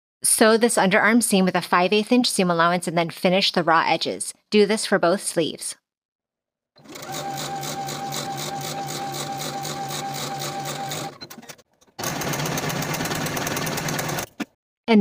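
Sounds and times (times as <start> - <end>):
sewing machine stitching: 6.8 - 14.6.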